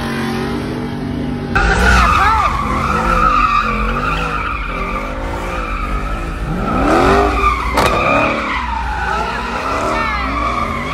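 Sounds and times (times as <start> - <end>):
car engine revving: 0.0 - 10.9
tyres squealing on pavement: 1.6 - 10.9
sharp crack: 7.7 - 8.2.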